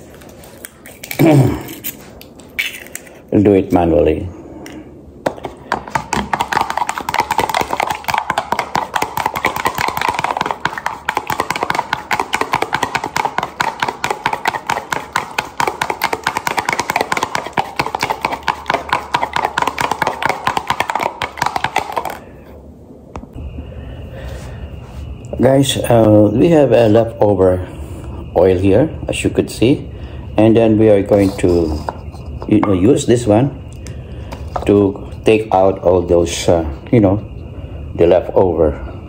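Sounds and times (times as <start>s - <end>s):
spoon beating eggs in plastic: 5.3s - 22.2s.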